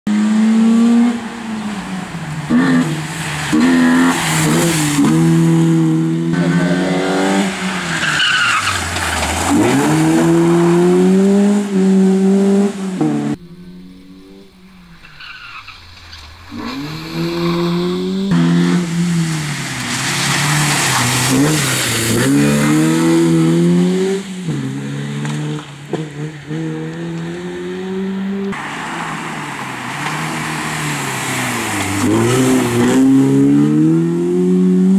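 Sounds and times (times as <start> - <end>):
rally car engine revving: 0.1 - 34.9
tyres scrabbling on gravel: 8.0 - 10.0, 19.2 - 22.8.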